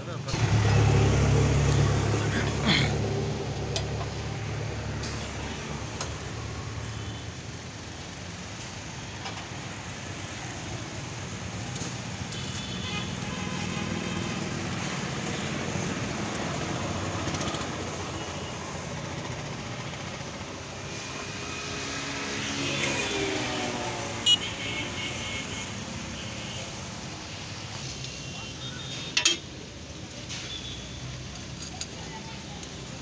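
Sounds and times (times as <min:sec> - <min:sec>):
vehicle passing by: 0:00.3 - 0:06.7, 0:20.4 - 0:24.3.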